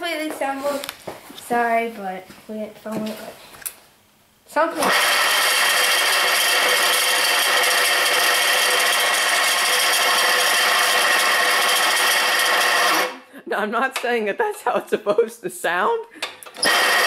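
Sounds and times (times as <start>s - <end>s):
motor whirring with high tones: 4.8s - 13.2s, 16.6s - 17.0s.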